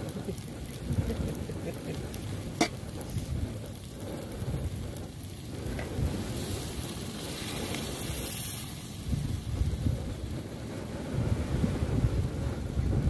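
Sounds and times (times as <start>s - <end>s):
food sizzling in a wok: 0.0s - 13.0s
water hissing in a hot wok: 0.0s - 13.0s.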